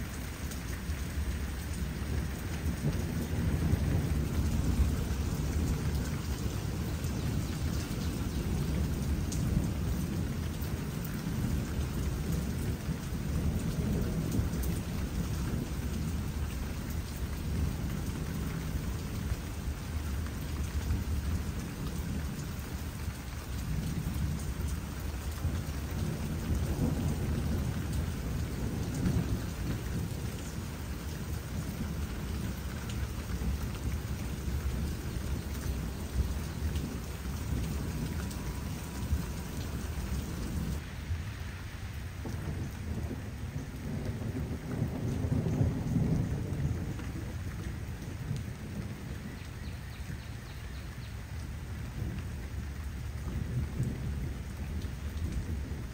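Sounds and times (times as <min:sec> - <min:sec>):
steady rain falling: 0:00.0 - 0:55.9
thunder rumbling: 0:00.9 - 0:19.8, 0:23.6 - 0:41.2, 0:42.1 - 0:49.3.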